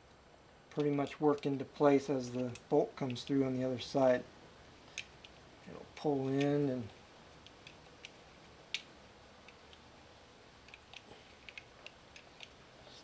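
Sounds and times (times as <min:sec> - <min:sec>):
small metal parts clicking: 0:10.7 - 0:12.6.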